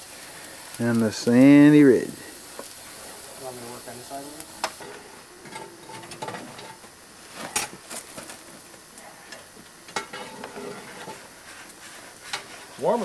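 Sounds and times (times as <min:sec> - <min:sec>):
steam locomotive hissing: 0:00.0 - 0:05.4.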